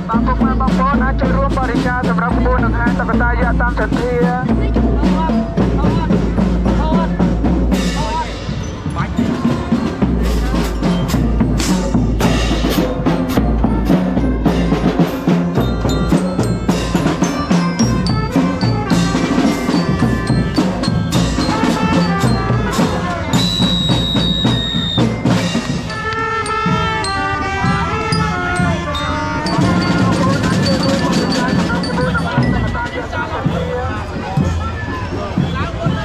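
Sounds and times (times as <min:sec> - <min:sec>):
mallet instrument: 0:00.0 - 0:34.6
drums: 0:00.0 - 0:36.0
wavering melody: 0:07.7 - 0:34.0.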